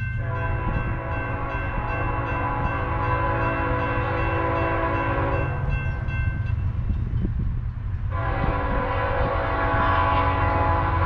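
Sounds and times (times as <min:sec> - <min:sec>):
train low rumble: 0:00.0 - 0:11.0
locomotive horn blast: 0:00.2 - 0:05.7, 0:08.1 - 0:11.0.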